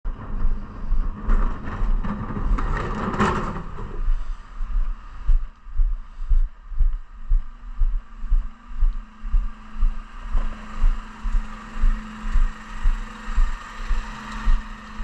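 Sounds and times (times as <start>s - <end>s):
faint steady hum: 0.1s - 15.0s
rushing noise: 0.1s - 15.0s
footsteps on pavement: 4.1s - 14.7s.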